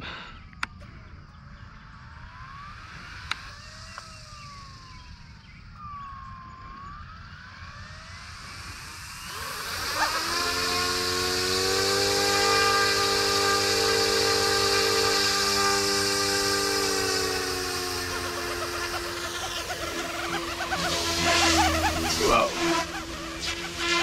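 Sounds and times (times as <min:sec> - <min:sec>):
rc helicopter motor whine: 0:00.0 - 0:24.0
rotor hiss: 0:08.2 - 0:24.0.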